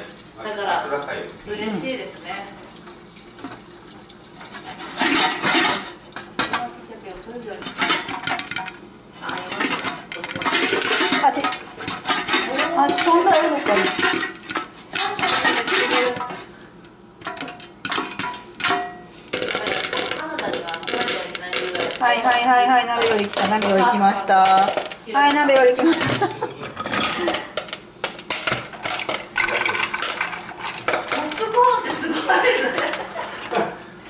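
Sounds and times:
popcorn popping: 0.0s - 33.1s
pan and lid rattling: 4.4s - 16.4s, 17.2s - 31.7s.

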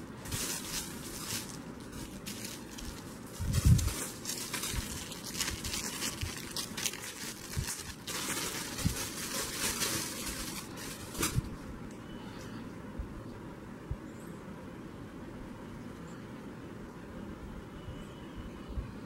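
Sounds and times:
plastic bag crinkling: 0.0s - 11.6s.

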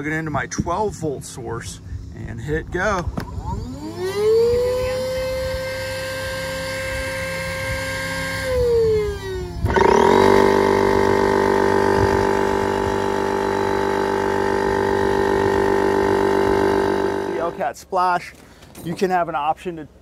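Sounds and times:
electric air pump whining: 3.0s - 17.6s.

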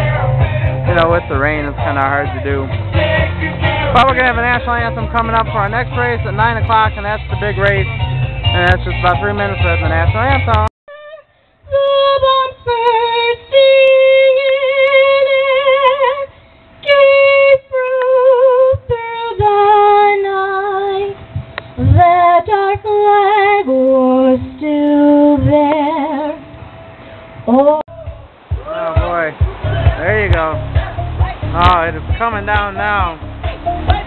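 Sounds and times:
woman singing with vibrato: 10.9s - 21.2s, 21.8s - 26.6s, 27.4s - 28.2s.

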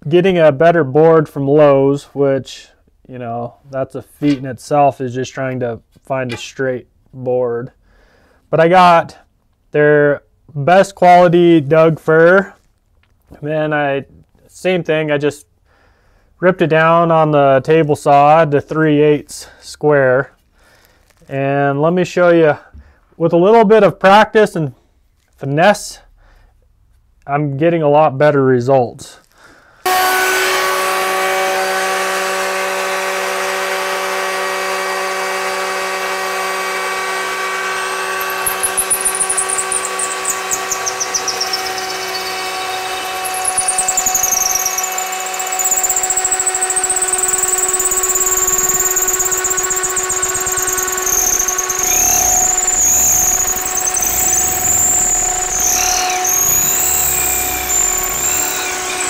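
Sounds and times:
high wavering squeal of wood: 29.8s - 59.0s
router running: 29.9s - 59.0s.

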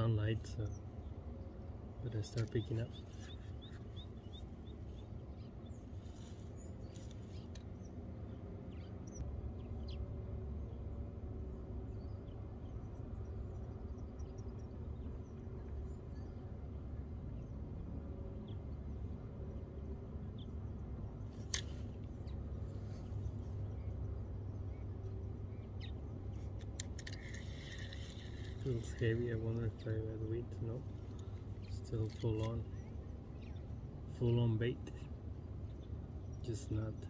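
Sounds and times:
low rumble of outdoor ambience: 0.0s - 37.0s
faint bird chirps: 0.2s - 10.0s
sharp clicks: 26.4s - 28.7s.

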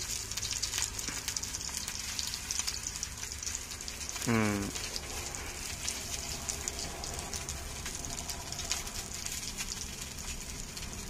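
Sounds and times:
fish sizzling in oil: 0.0s - 11.0s
low rumble: 4.7s - 11.0s.

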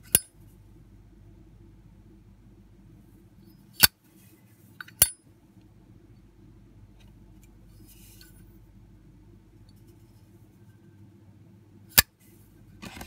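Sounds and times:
faint handling rustle: 7.0s - 8.6s.

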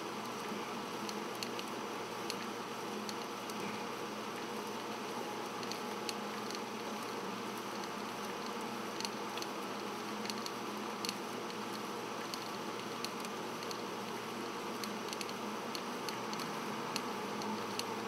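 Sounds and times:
film playback hum and hiss: 0.0s - 18.0s.

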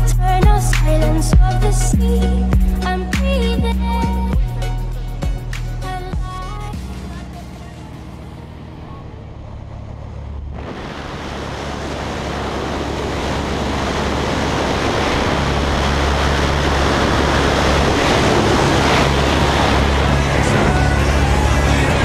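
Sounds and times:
plane engine drone: 0.0s - 22.0s.

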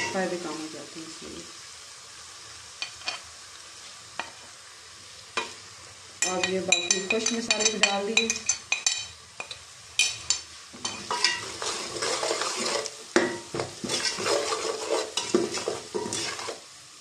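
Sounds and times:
onions sizzling in oil: 0.0s - 17.0s
ladle scraping and clinking pot: 8.4s - 16.6s.

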